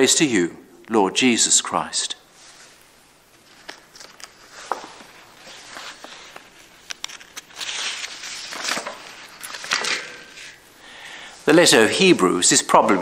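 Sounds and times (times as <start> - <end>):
paper rustling: 2.4 - 10.7.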